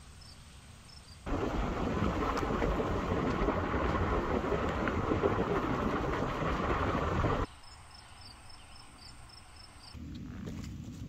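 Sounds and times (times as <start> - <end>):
insects chirping: 0.1 - 10.0
vehicle road noise on dirt road: 1.3 - 7.5.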